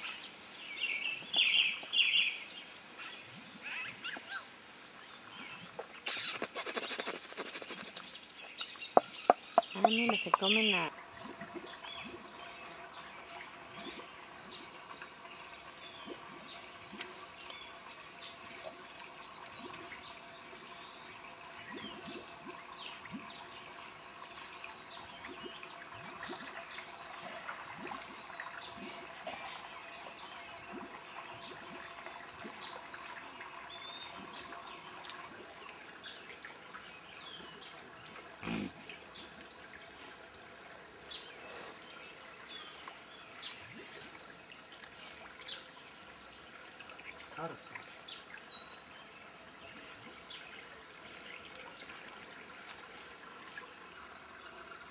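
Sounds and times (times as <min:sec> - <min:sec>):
birds chirping and calling: 0:05.6 - 0:10.9.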